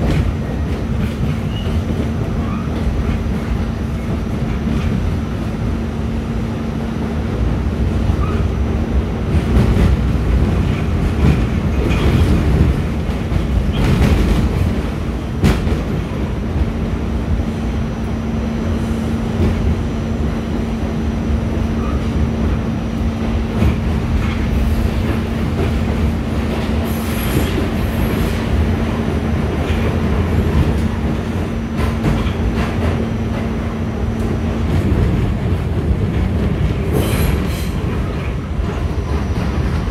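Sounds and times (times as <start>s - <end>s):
rail clacks: 0.0s - 39.9s
subway wheels rumbling on track: 0.0s - 39.9s.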